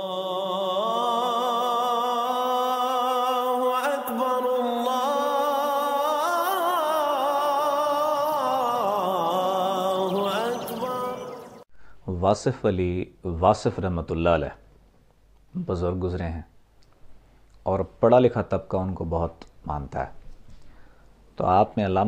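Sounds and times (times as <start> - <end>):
person singing with vibrato: 0.0 - 11.7.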